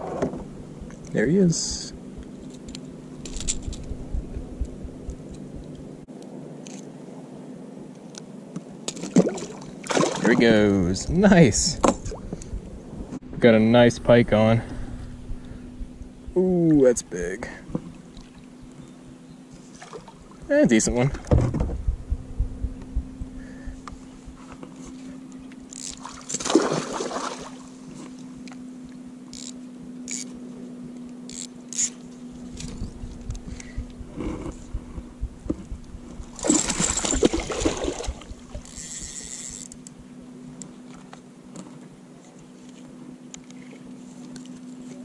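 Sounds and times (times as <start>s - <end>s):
faint steady hum: 0.0s - 45.0s
water splashing: 9.0s - 10.5s, 25.9s - 27.9s, 36.3s - 38.6s.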